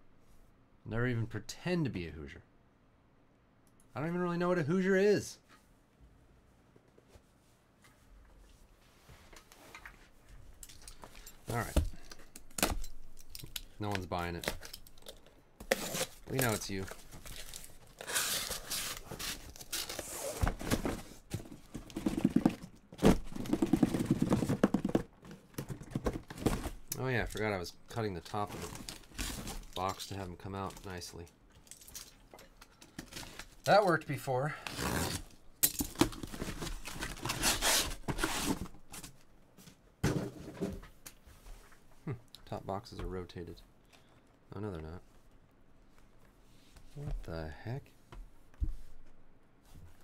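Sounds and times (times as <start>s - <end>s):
cardboard scraping and juddering: 18.3s - 26.9s
box bump: 20.3s - 26.8s.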